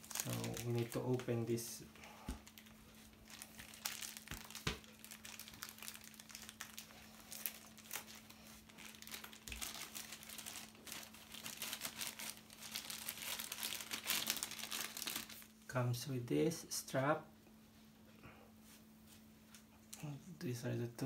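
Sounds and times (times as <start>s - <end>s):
plastic bag crinkling: 0.0s - 1.6s, 2.3s - 15.5s
faint steady hum: 0.0s - 21.0s.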